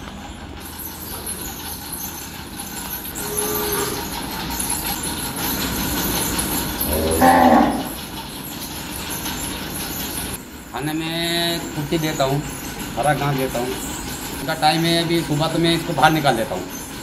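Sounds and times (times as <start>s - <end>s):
steady background noise: 0.0s - 17.0s
cow mooing: 3.2s - 4.1s, 6.8s - 8.0s.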